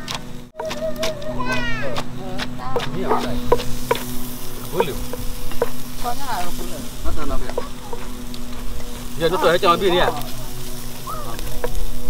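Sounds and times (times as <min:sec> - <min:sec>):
wooden pestle knocking in a mortar: 0:01.9 - 0:05.9
meat sizzling on a grill: 0:02.8 - 0:12.0.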